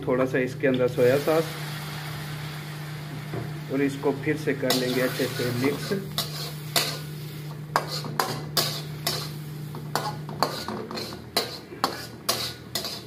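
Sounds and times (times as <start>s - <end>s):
metal spatula scraping a wok: 4.6s - 13.0s.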